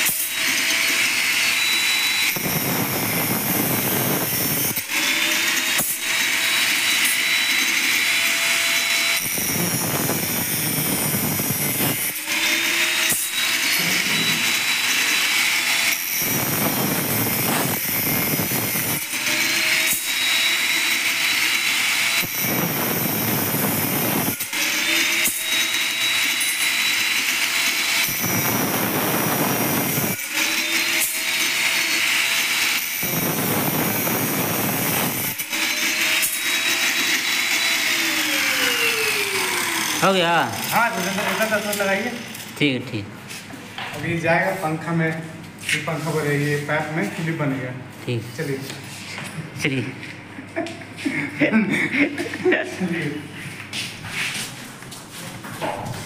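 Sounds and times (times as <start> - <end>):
angle grinder cutting metal: 0.0 - 42.8
grinder motor whine: 0.0 - 42.8.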